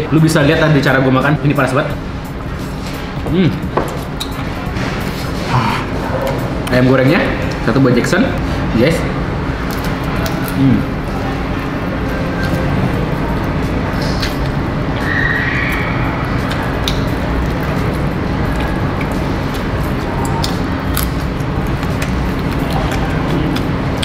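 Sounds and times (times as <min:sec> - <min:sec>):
steady background din: 0:00.0 - 0:24.0
person chewing chicken: 0:16.4 - 0:24.0.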